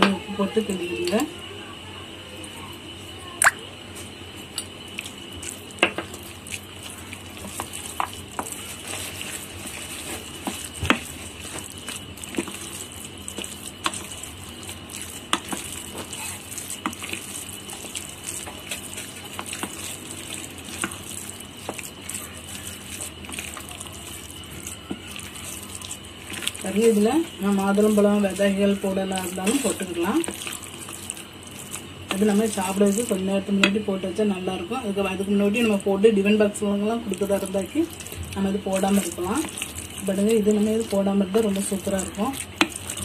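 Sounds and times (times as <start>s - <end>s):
spoon stirring thick rice: 4.6s - 33.8s, 37.1s - 43.0s.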